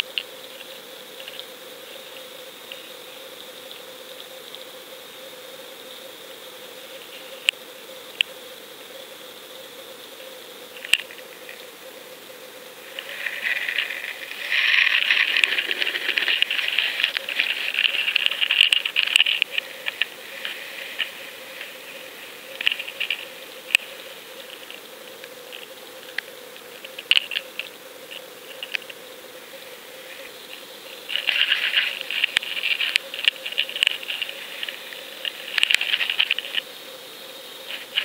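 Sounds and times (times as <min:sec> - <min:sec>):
faint hum: 0:00.0 - 0:38.0
underwater hiss: 0:12.8 - 0:18.2.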